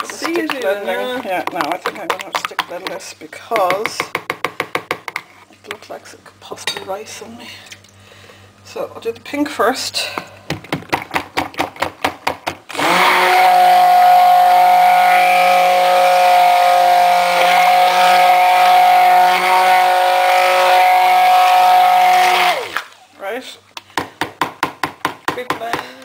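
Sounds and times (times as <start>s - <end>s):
stick blender running: 12.7s - 22.9s.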